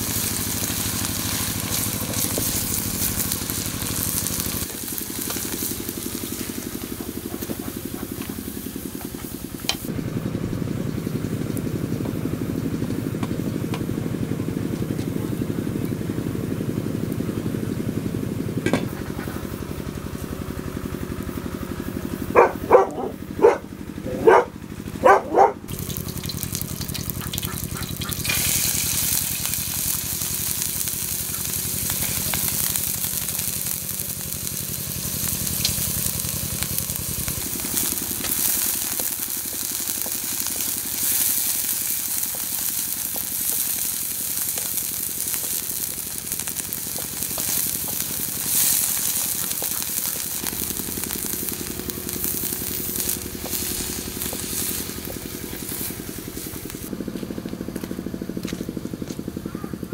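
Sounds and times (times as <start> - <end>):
raisins sizzling in a pan: 0.0 - 13.9, 25.7 - 56.9.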